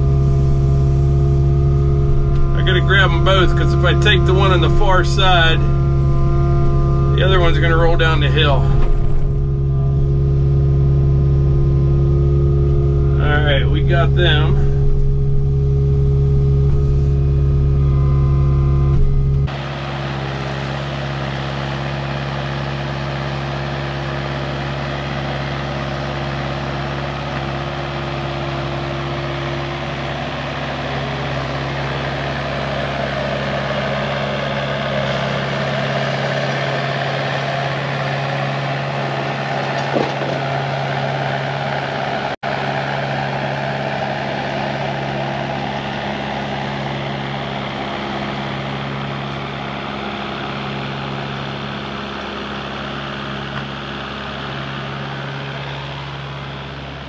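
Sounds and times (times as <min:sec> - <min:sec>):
excavator diesel engine running: 0:00.0 - 0:57.0.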